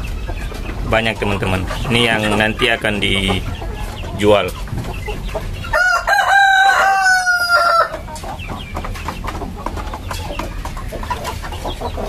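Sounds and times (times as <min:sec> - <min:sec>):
chickens clucking: 0:00.0 - 0:12.0
rooster crowing: 0:05.7 - 0:08.0.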